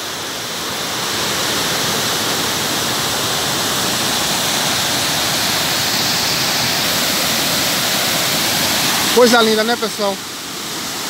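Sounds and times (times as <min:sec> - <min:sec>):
waterfall rushing over rock: 0:00.0 - 0:11.0.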